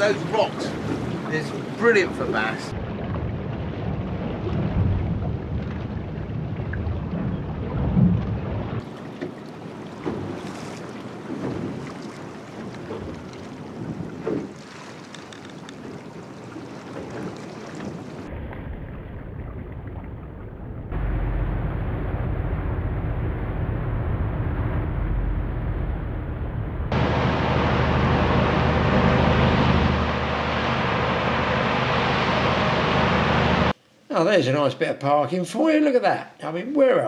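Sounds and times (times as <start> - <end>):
rushing water: 0.0 - 20.4, 26.9 - 33.8
outboard engine drone: 0.0 - 33.9
wind on microphone: 2.8 - 8.8.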